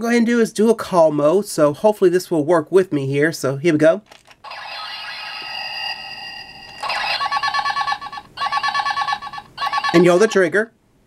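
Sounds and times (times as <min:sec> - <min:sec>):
steady electronic tone: 0:04.5 - 0:09.8
warbling electronic ring: 0:04.5 - 0:10.4.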